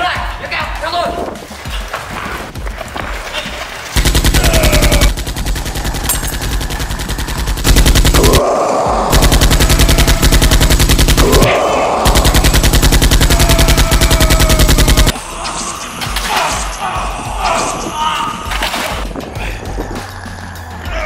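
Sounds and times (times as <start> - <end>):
machine-gun fire: 4.0 - 8.4, 9.1 - 15.2.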